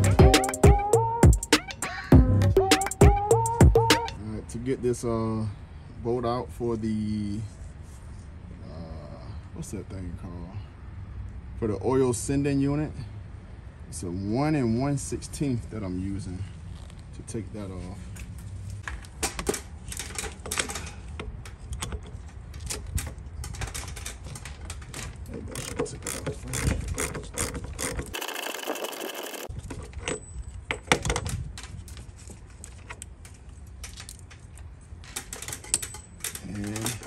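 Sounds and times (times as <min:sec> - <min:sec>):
ratchet clicking: 0:25.3 - 0:29.5
metal tools clinking: 0:33.2 - 0:37.0.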